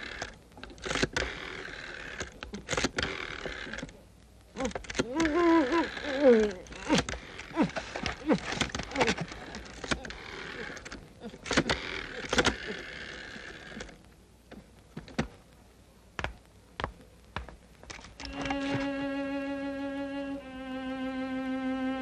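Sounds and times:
cartoon clicks creaks and squeaks: 0.0 - 4.0, 4.6 - 14.0, 17.9 - 18.7.

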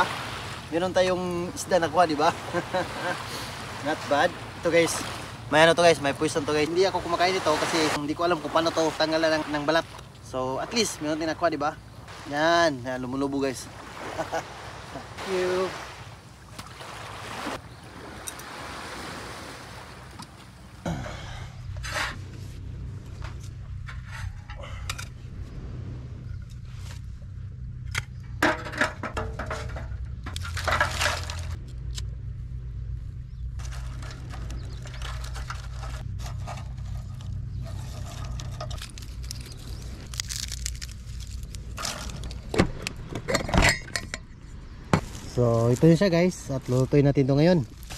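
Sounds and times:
water rushing: 0.0 - 20.8
wind: 0.0 - 47.9
low steady hum: 20.1 - 47.9
loud rustle or scrape: 33.6 - 42.4.

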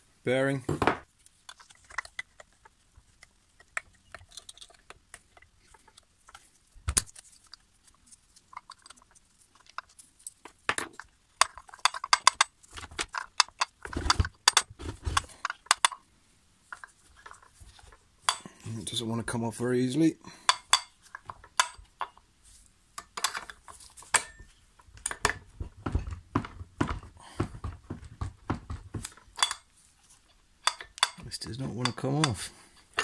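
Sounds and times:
knocks: 25.6 - 29.1.

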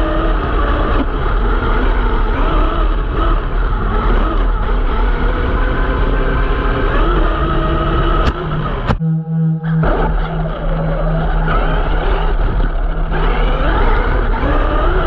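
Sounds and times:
electric motor whine: 0.0 - 15.0
toy truck rumbling over ground: 9.7 - 15.0.

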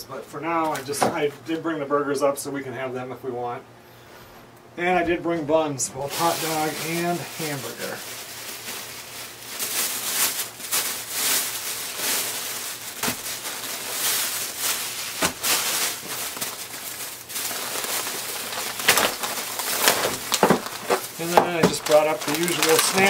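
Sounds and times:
plastic bags rustling: 0.2 - 1.5, 5.9 - 23.0.

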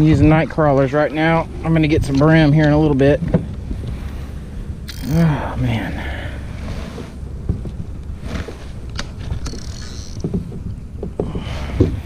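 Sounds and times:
wind rumbling on microphone: 0.0 - 12.0
fishing rod and tackle clicks: 4.9 - 5.2, 8.9 - 10.3
water against plastic kayak hull: 6.5 - 12.0.

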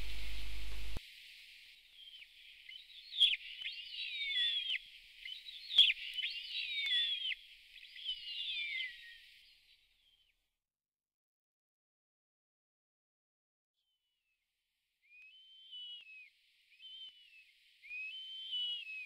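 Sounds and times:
bird whistled calls: 2.0 - 9.4, 15.1 - 19.0.

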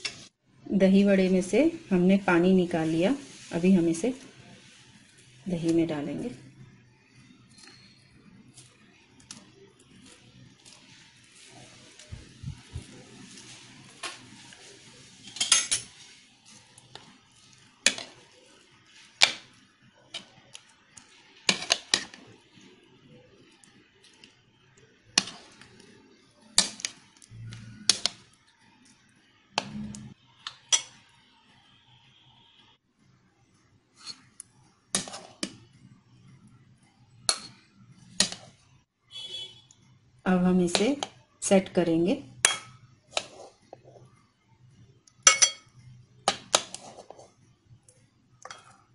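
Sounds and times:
metal spoon clinking on china: 45.2 - 45.8.

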